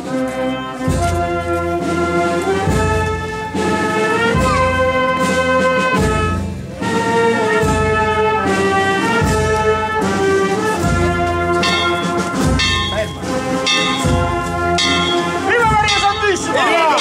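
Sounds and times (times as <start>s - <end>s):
brass band playing slow chords: 0.0s - 17.0s
low bass beat: 10.8s - 16.7s.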